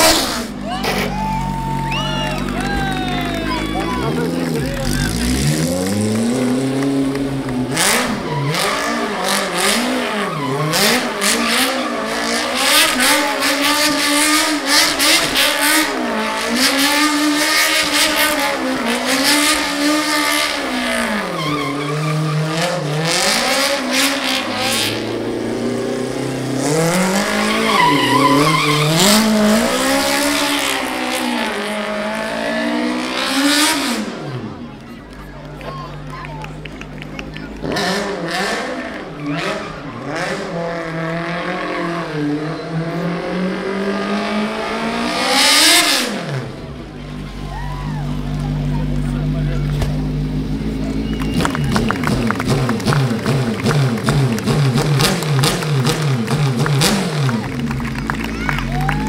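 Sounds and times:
car engine revving: 0:00.0 - 0:34.8, 0:36.6 - 0:59.0
tyres spinning and squealing: 0:07.8 - 0:12.7, 0:20.5 - 0:24.7, 0:26.7 - 0:31.9.

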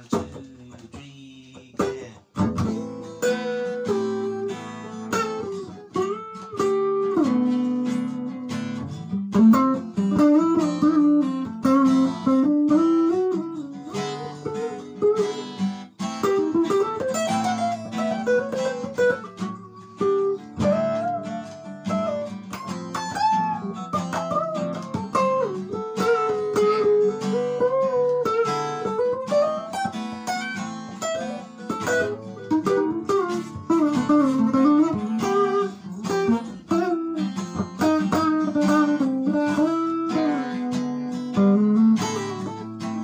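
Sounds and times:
electric guitar lead line: 0:02.3 - 0:43.0.

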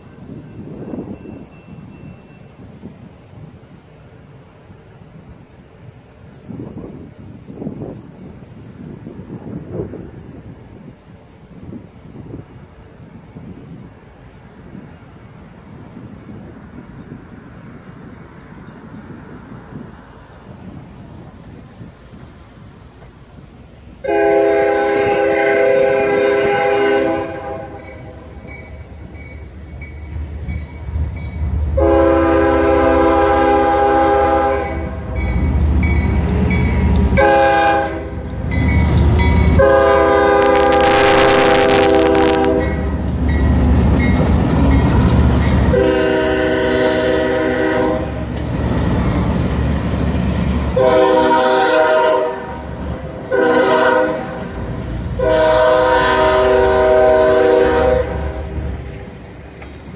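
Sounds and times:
low rumble of locomotives: 0:00.0 - 0:59.9
crossing bell dinging: 0:00.2 - 0:02.6, 0:35.1 - 0:37.0, 0:37.8 - 0:39.7
locomotive air horn blasts: 0:24.0 - 0:28.4, 0:31.8 - 0:35.5, 0:36.8 - 0:38.4, 0:39.4 - 0:42.9, 0:45.7 - 0:48.3, 0:50.7 - 0:54.6, 0:55.2 - 0:58.6.

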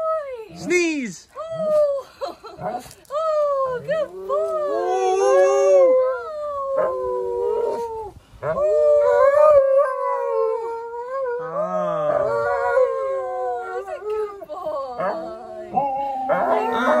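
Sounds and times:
dog howling: 0:03.6 - 0:17.0.

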